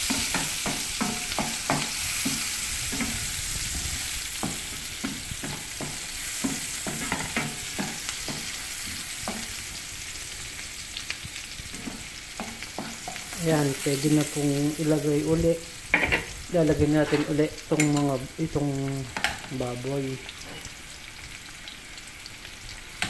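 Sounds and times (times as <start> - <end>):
onions sizzling in oil: 0.0 - 23.0
utensil scraping and knocking pan: 16.9 - 17.4.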